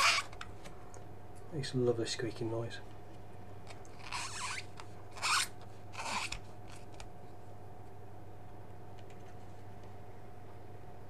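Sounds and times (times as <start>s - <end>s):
thumb rubbing tape off plastic: 0.0s - 0.5s, 3.6s - 7.1s
steady hum: 0.0s - 11.0s.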